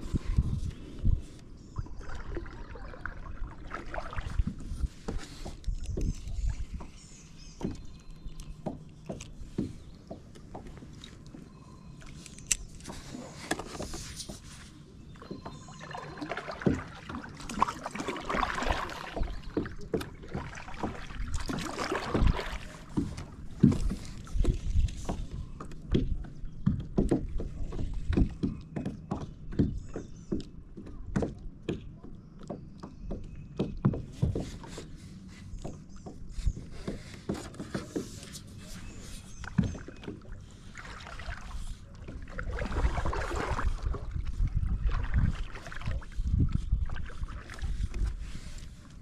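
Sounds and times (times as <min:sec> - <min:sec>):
fishing gear knocking in kayak: 0:16.4 - 0:34.7.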